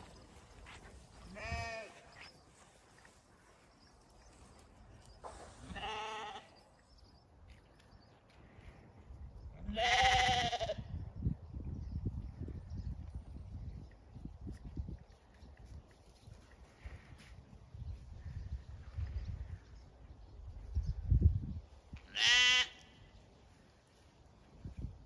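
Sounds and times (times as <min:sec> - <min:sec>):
sheep bleating: 0:01.3 - 0:02.1, 0:05.7 - 0:06.6, 0:09.6 - 0:10.8, 0:22.1 - 0:22.9.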